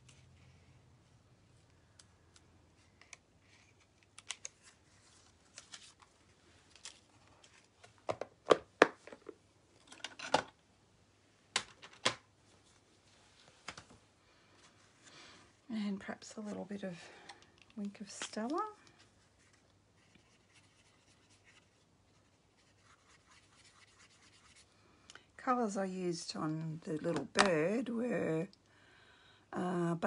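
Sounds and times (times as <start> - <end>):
paper cards tapping and rustling: 6.7 - 10.5.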